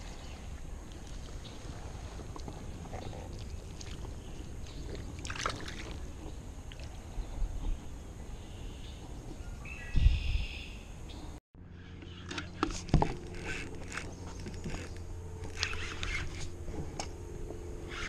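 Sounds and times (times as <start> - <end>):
water sloshing and splashing: 0.0 - 7.1.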